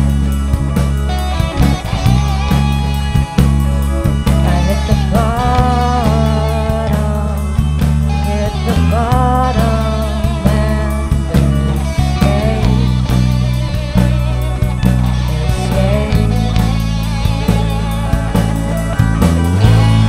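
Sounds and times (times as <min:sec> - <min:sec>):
electric bass line: 0:00.0 - 0:20.0
electric guitar melody: 0:00.0 - 0:20.0
keyboard: 0:00.0 - 0:20.0
drum kit hits: 0:10.3 - 0:20.0.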